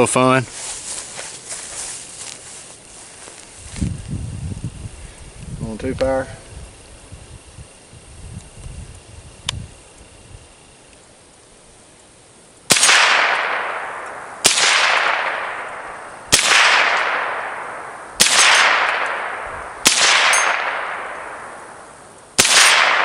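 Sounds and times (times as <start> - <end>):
steel target ringing: 12.7 - 21.8
rifle shots cracking: 12.7 - 23.0.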